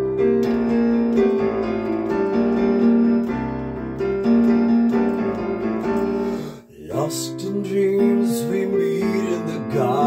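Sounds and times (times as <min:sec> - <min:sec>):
electronic keyboard chords and bass: 0:00.0 - 0:06.6.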